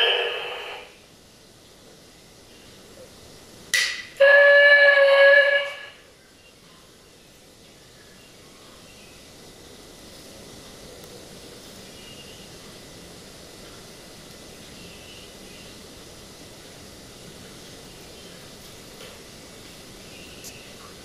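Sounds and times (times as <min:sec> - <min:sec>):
steam locomotive whistle: 0:00.0 - 0:00.9, 0:04.2 - 0:06.1.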